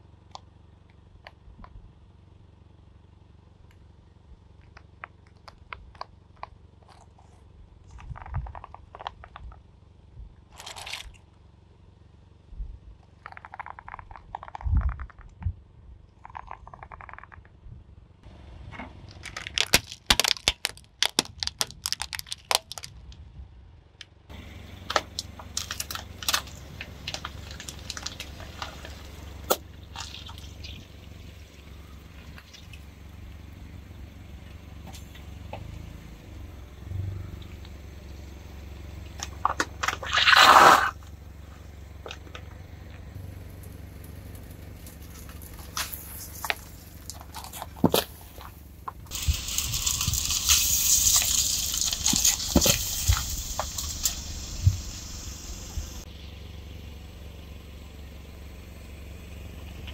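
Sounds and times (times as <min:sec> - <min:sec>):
car engine humming: 0:00.0 - 0:20.3, 0:23.6 - 0:59.9
silicone toys popping under tyre: 0:04.4 - 0:09.8, 0:13.0 - 0:17.9, 0:18.7 - 0:23.3, 0:24.0 - 0:33.2, 0:38.9 - 0:56.1
loud crunching pop: 0:19.1 - 0:23.0.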